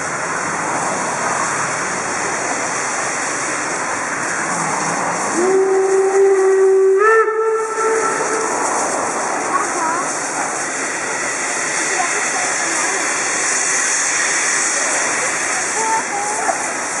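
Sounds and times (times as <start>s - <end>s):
steam hissing: 0.0s - 17.0s
steam whistle: 5.3s - 8.8s.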